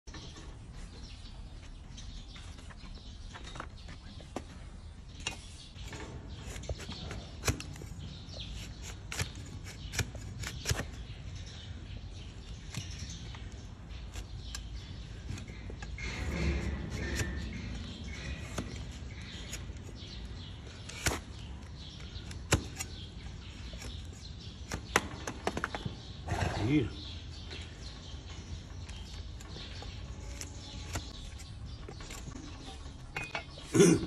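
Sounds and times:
blade cutting hoof horn: 0:12.5 - 0:25.0, 0:28.8 - 0:32.5.

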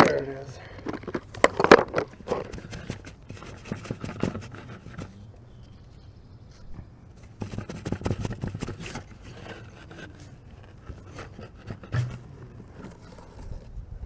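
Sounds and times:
auger scraping through dirt: 0:02.0 - 0:05.7, 0:07.2 - 0:13.8.

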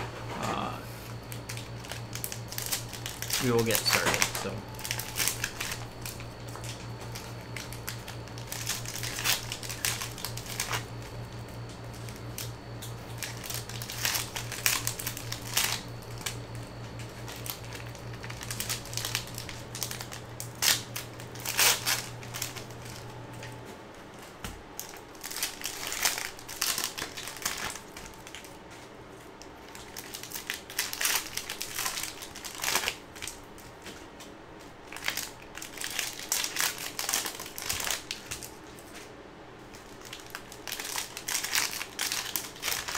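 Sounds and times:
low hum: 0:00.0 - 0:32.0
plastic wrappers crinkling and tearing: 0:01.1 - 0:42.9.

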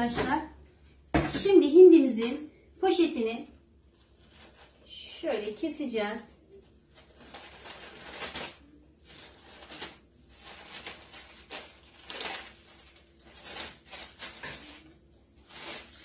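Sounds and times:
plastic bag crinkling: 0:06.8 - 0:16.0.

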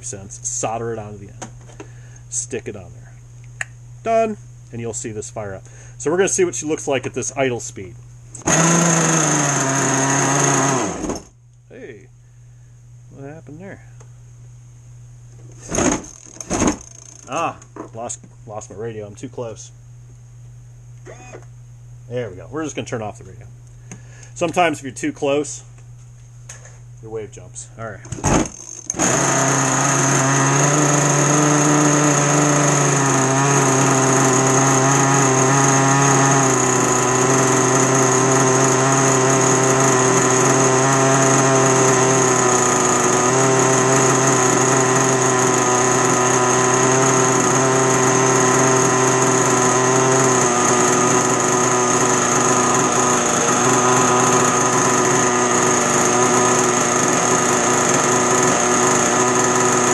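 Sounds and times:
small two-stroke engine idling: 0:28.5 - 0:59.9.

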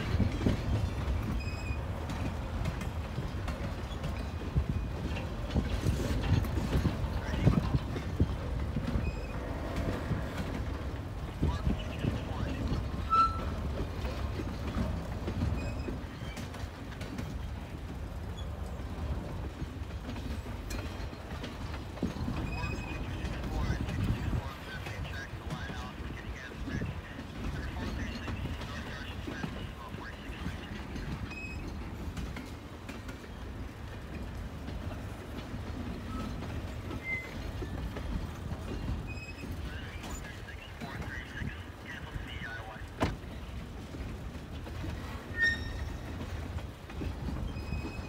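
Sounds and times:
train wheels clicking over rail joints: 0:00.0 - 0:42.1, 0:42.8 - 0:48.0
high wheel squeal: 0:01.3 - 0:01.9, 0:13.0 - 0:13.6, 0:45.2 - 0:46.2, 0:47.4 - 0:48.0.

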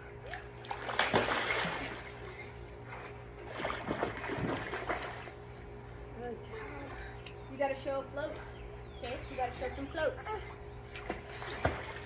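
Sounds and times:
water splashing and sloshing: 0:00.0 - 0:05.7, 0:10.4 - 0:12.0
child splashing into pool: 0:00.7 - 0:02.2, 0:11.0 - 0:12.0.

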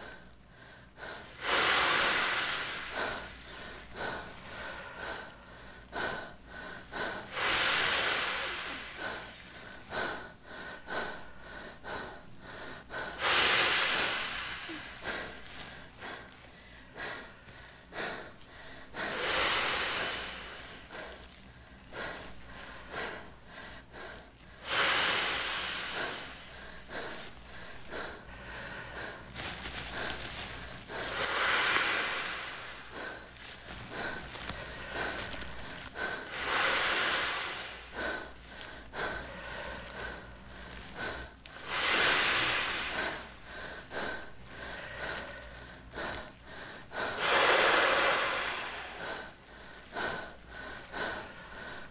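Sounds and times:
man blowing into plastic bag: 0:28.8 - 0:44.4, 0:46.9 - 0:50.2.

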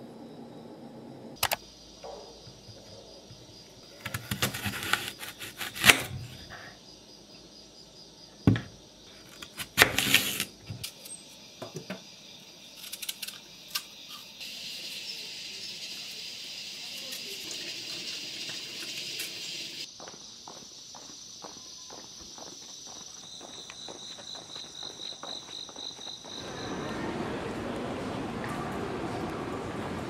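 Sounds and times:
knife crunching through apple: 0:04.0 - 0:06.3, 0:09.3 - 0:10.5.

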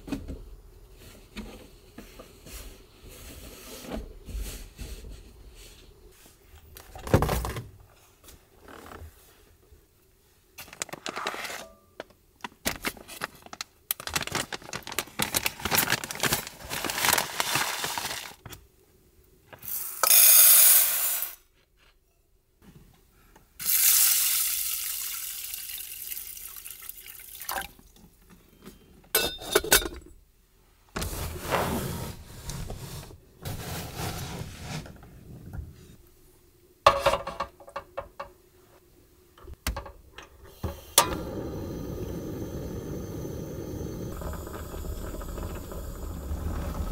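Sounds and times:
cloth and packaging rustling: 0:10.6 - 0:18.4
rice poured into metal pot: 0:23.6 - 0:27.4
water pouring into pot: 0:23.6 - 0:27.8, 0:41.0 - 0:46.9.

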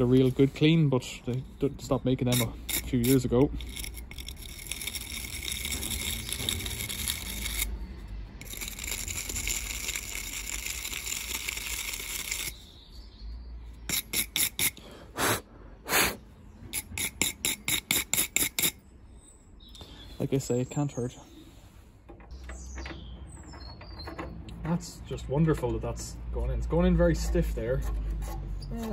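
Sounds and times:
wire brush scratching spark plug: 0:02.2 - 0:07.7, 0:08.4 - 0:12.6, 0:13.9 - 0:14.8.

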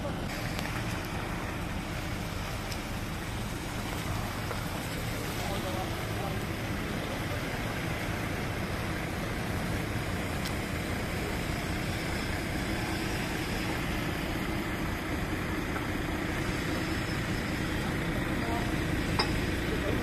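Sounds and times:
diesel machinery engine drone: 0:00.0 - 0:20.0.

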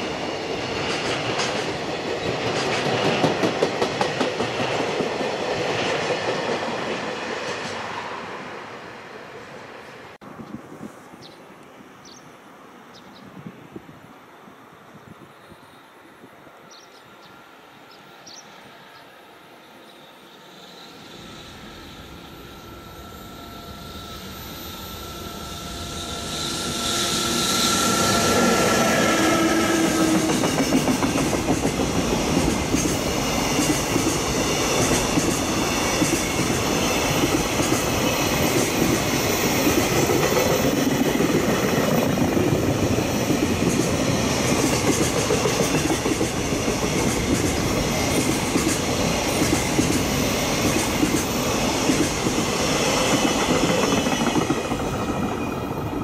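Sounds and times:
freight train rumble: 0:00.0 - 0:11.2, 0:13.4 - 0:56.0
locomotive whine: 0:14.4 - 0:56.0.

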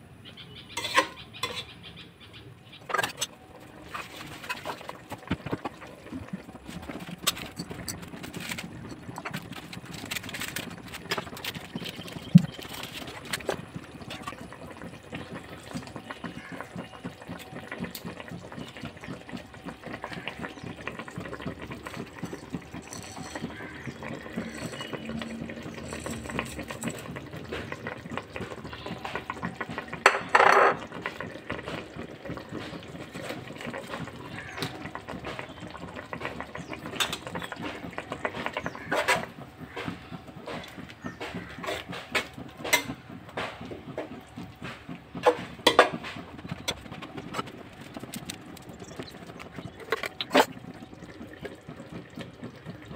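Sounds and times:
spoon scraping pot: 0:00.8 - 0:01.8.

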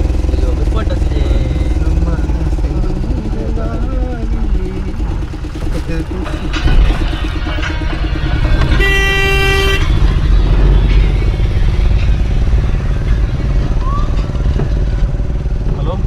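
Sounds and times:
vehicle engine and road rumble: 0:00.0 - 0:16.0
vehicle horn honking: 0:07.5 - 0:10.5.

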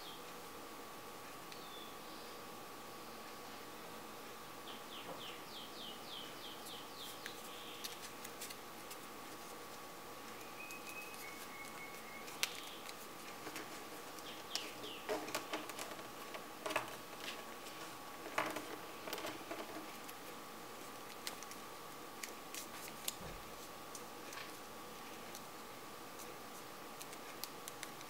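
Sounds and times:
bird chirping: 0:00.0 - 0:00.3, 0:01.5 - 0:03.4, 0:04.6 - 0:08.0, 0:10.3 - 0:13.0, 0:14.2 - 0:15.6
faint high hum: 0:00.0 - 0:28.0
paper crinkling while folded: 0:06.6 - 0:25.6, 0:26.2 - 0:28.0.

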